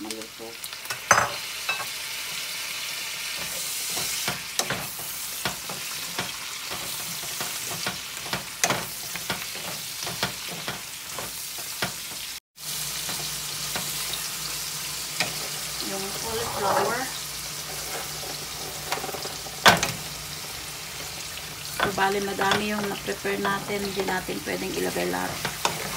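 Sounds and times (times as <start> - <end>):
vegetables sizzling in oil: 0.0 - 25.9
spatula scraping a pan: 15.2 - 25.9.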